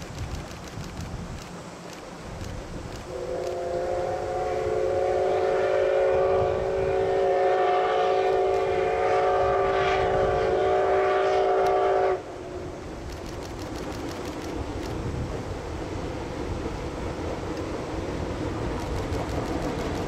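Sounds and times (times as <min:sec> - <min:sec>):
steam locomotive whistle: 0:03.1 - 0:12.3.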